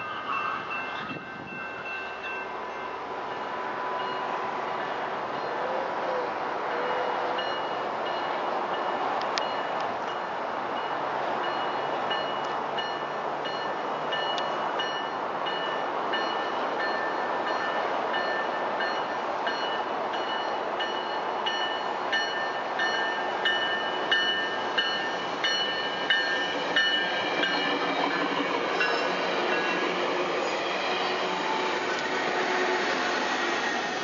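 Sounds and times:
crossing bell ringing: 0:00.0 - 0:05.0, 0:06.7 - 0:33.6
train rumbling: 0:00.0 - 0:34.0
train wheels clacking over rails: 0:22.2 - 0:34.0.

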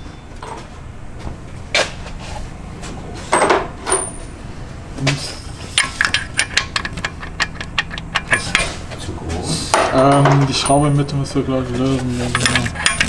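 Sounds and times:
metal hand tools clinking: 0:05.8 - 0:08.8, 0:12.2 - 0:13.0.

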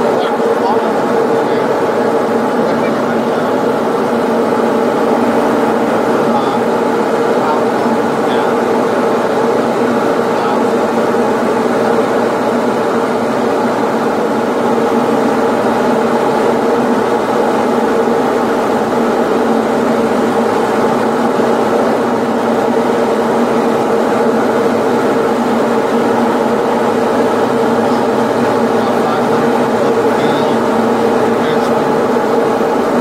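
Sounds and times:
airplane engine drone in cockpit: 0:00.0 - 0:33.0.

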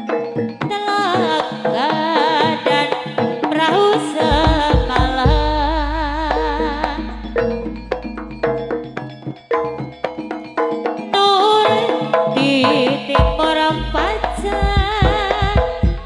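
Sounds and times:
percussion: 0:00.0 - 0:16.0
wavering high melody: 0:05.2 - 0:12.4
deep low ringing note: 0:05.3 - 0:09.2.

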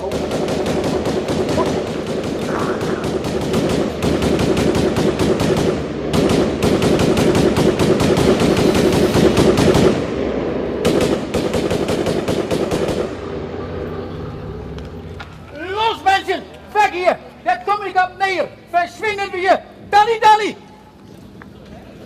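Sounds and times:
machine-gun fire bursts: 0:00.0 - 0:10.2, 0:10.8 - 0:13.2.

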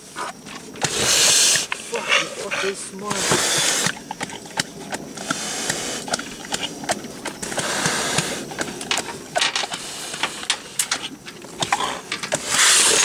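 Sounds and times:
hissing noise: 0:00.0 - 0:13.0.

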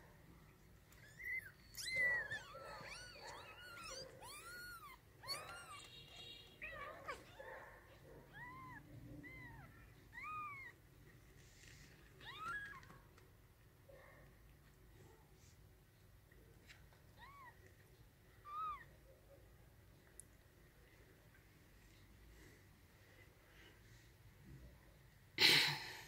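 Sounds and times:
kittens mewing: 0:00.9 - 0:10.8.

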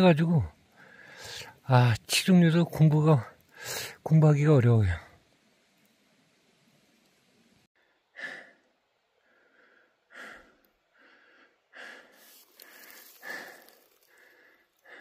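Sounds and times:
man breathing in and out: 0:00.6 - 0:01.6, 0:03.4 - 0:04.0, 0:07.8 - 0:15.0
faint rustle: 0:12.0 - 0:15.0.

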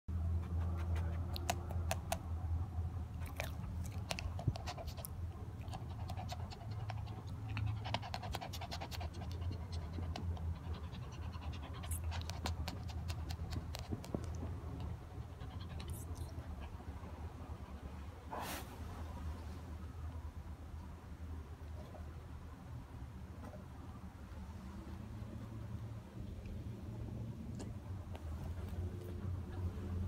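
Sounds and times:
dog panting: 0:00.2 - 0:02.2, 0:03.2 - 0:18.2
wet licking sounds: 0:00.6 - 0:02.3, 0:03.2 - 0:16.5.

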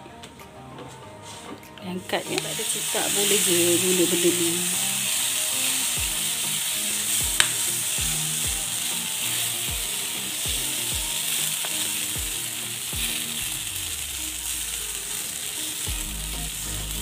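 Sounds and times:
batter sizzling in hot pan: 0:02.2 - 0:17.0
bass beats of background music: 0:03.4 - 0:17.0.

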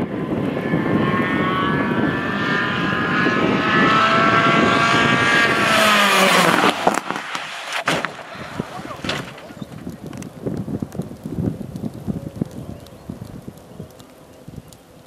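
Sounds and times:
rally car engine at high revs: 0:00.0 - 0:08.8.

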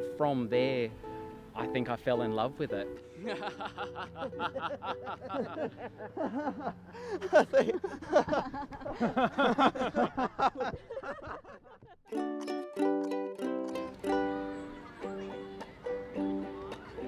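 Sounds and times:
people laughing heartily: 0:03.1 - 0:12.1.

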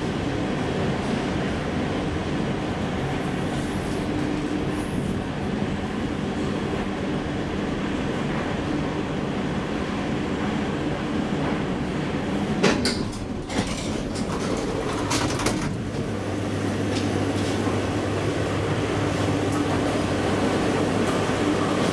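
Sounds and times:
elevator humming: 0:00.0 - 0:21.9
sliding doors opening: 0:11.3 - 0:21.9
elevator clunks and clicks: 0:12.5 - 0:16.2.

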